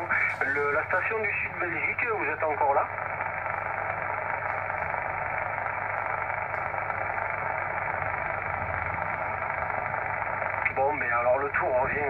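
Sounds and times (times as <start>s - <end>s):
low hum: 0.0s - 12.0s
radio static hiss: 0.0s - 12.0s.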